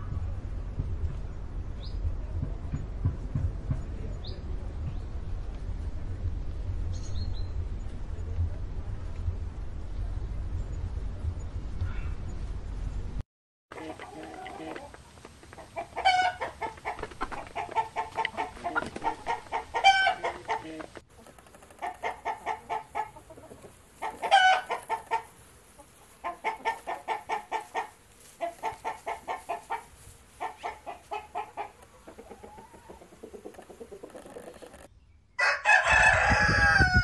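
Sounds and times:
hens clucking: 13.7s - 34.9s
chicken squawk: 15.8s - 20.9s, 21.8s - 25.3s.

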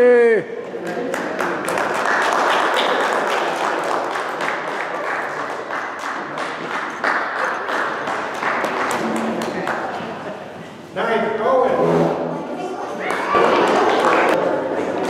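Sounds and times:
small audience applauding: 0.8s - 10.3s, 13.0s - 15.0s.

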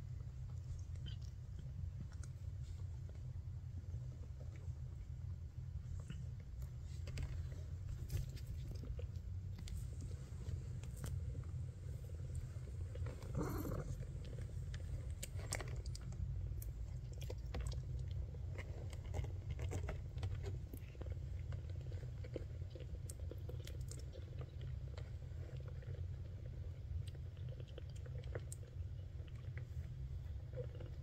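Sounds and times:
cat purring: 0.0s - 31.0s.

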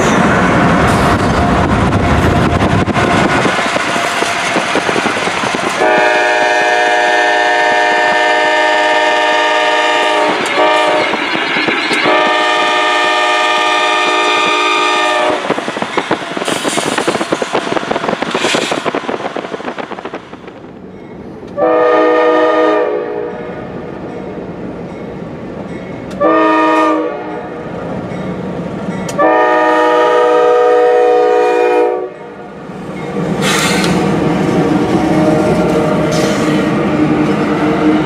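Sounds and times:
locomotive engine and wheels rumbling: 0.0s - 38.0s
train air horn blasts: 5.8s - 11.2s, 12.0s - 15.6s, 21.6s - 23.6s, 26.2s - 27.6s, 29.2s - 32.3s.

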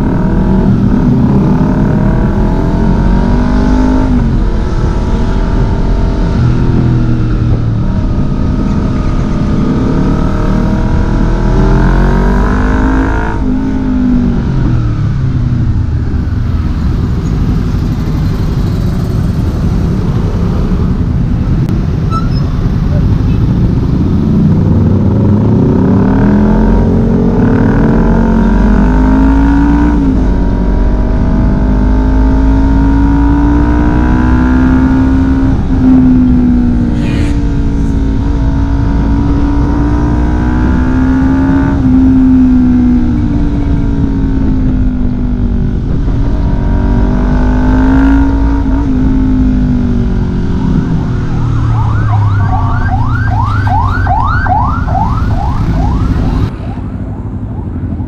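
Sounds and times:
motorcycle engine accelerating: 0.0s - 58.0s
rising high-pitched sweeps: 36.7s - 40.7s.

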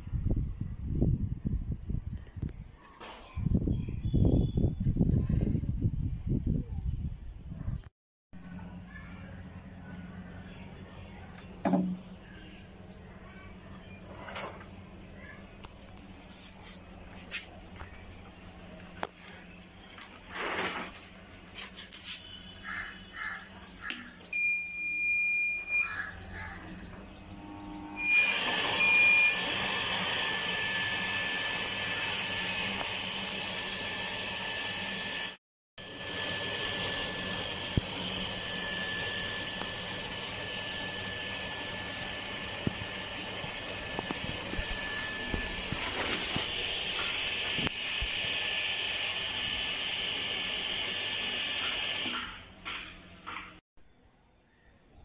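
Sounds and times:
electric water pump running: 24.4s - 52.8s.

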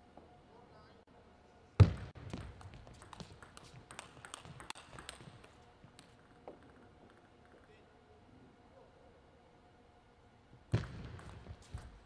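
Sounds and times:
table tennis ball clicking: 2.4s - 7.6s.

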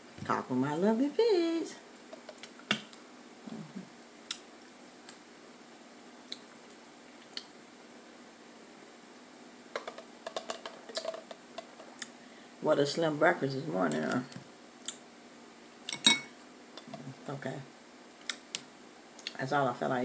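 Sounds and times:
faint room hum: 0.0s - 20.0s.

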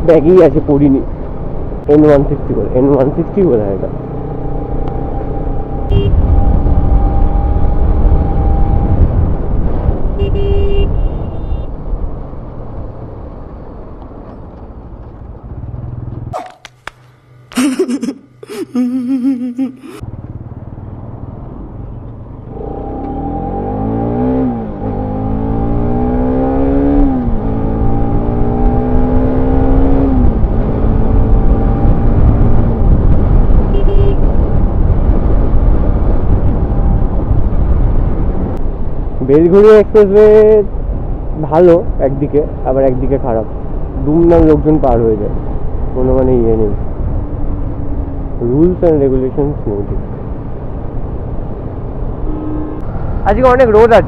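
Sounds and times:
wind rush: 4.9s - 10.2s, 25.9s - 39.3s
motorcycle engine running: 20.0s - 22.2s.

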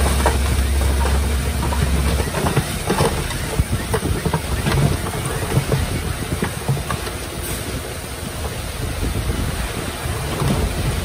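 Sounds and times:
bulldozer diesel engine running: 0.0s - 11.0s
heavy low rumble: 0.0s - 11.0s
steel tracks clattering: 0.0s - 11.0s
stones being pushed: 0.0s - 11.0s.

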